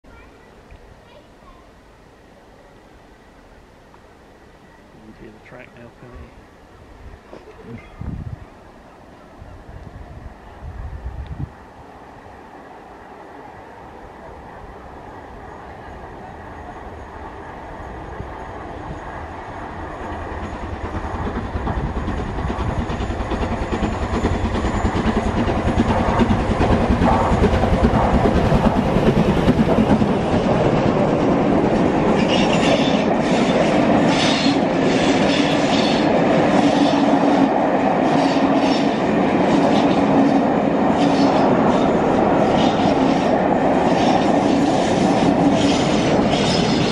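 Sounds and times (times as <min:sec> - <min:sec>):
steam locomotive running past: 0:00.1 - 0:46.9
wheels clacking over rail joints: 0:19.7 - 0:46.9.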